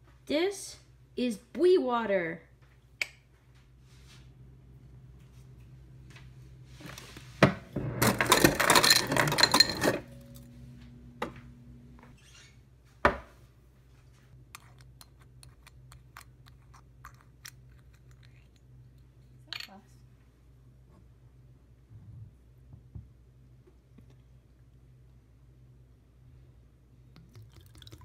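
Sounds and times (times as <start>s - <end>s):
refrigerator hum: 3.3s - 28.0s
ice cubes clattering into glass: 8.0s - 10.1s.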